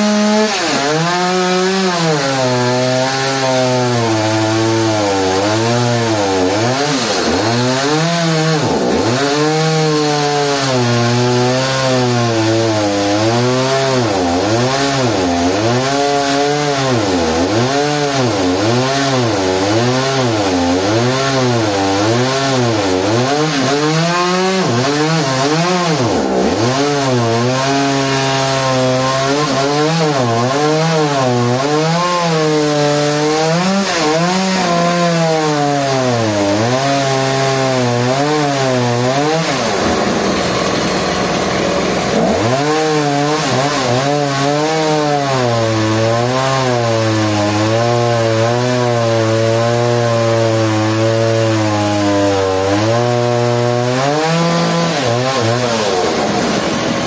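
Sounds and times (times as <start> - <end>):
chainsaw cutting into root: 0.0 - 57.0.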